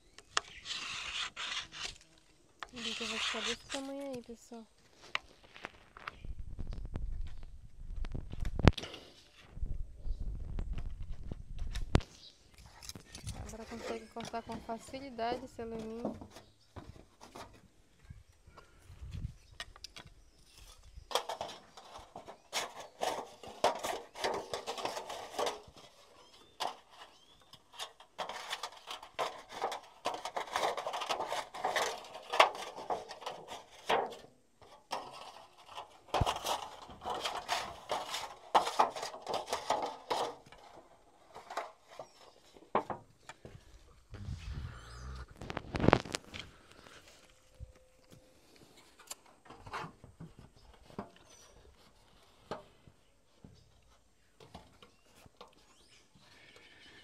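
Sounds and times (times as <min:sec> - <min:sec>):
knife scraping aluminium sheet: 0:00.4 - 0:02.0, 0:02.7 - 0:04.0.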